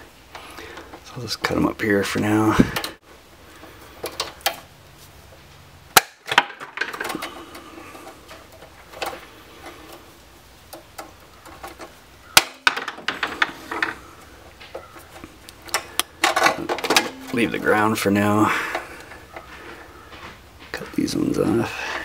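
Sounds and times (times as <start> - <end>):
rustle of cables handled: 2.6 - 5.6.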